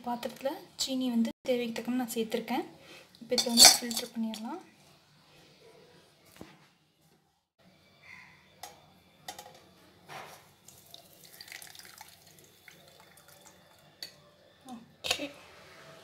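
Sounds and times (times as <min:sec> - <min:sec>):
tea trickling and dripping: 0:10.6 - 0:14.2.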